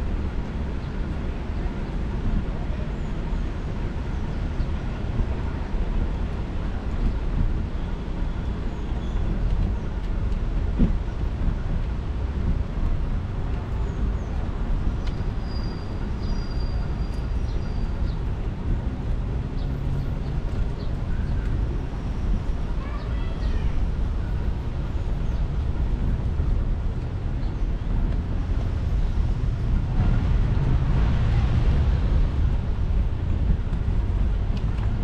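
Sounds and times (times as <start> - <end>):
faint city traffic: 0.0 - 35.0
wind and rolling noise: 0.0 - 35.0.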